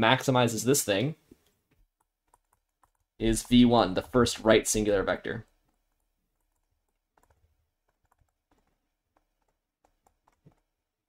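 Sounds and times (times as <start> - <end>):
stylus tapping on tablet screen: 5.4 - 10.7.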